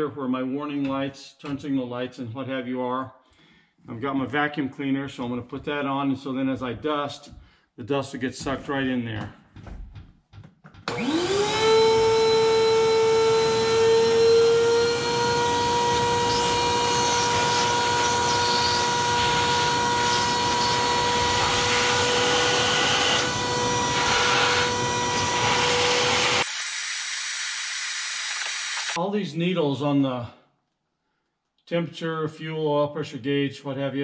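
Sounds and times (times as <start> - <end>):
vacuum cleaner running: 10.9 - 29.0.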